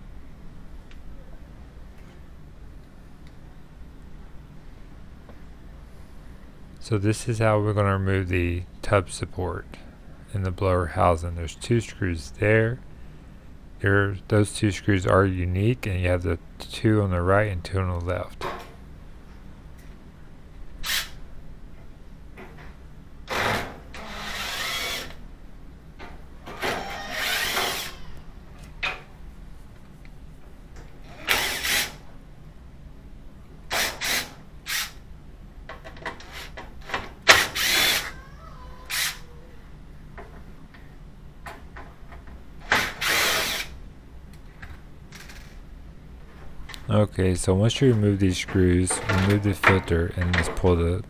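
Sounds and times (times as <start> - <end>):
power drill running: 23.3 - 25.2, 26.8 - 28.0, 31.1 - 31.9, 37.4 - 38.1, 43.0 - 43.7.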